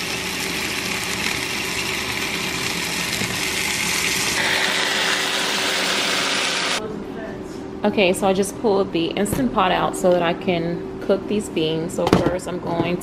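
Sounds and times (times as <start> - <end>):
meat sizzling in a pot: 0.0 - 6.8.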